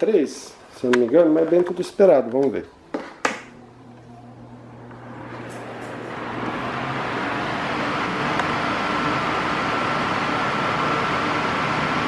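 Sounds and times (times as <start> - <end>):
electric fan airflow: 3.5 - 12.0.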